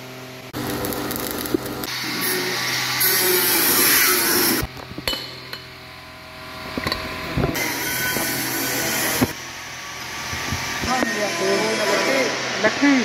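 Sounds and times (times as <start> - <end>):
angle grinder cutting steel: 1.1 - 4.7, 6.8 - 12.7.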